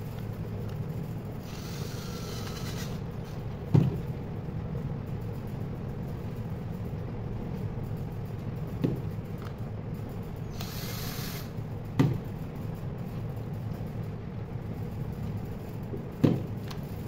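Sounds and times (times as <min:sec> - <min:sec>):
steady low hum: 0:00.0 - 0:17.0
cordless drill whirring: 0:01.4 - 0:03.0, 0:10.6 - 0:11.5.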